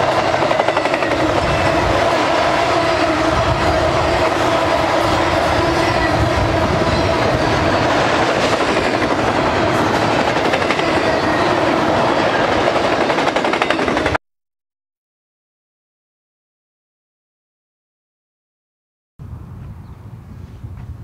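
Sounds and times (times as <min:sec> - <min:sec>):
freight train wheels rumbling: 0:00.0 - 0:14.2.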